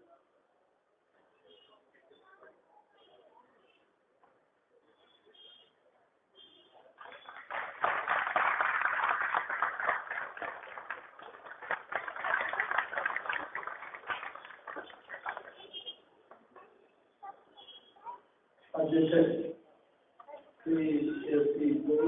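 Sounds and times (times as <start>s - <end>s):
audience applauding: 7.0s - 15.8s.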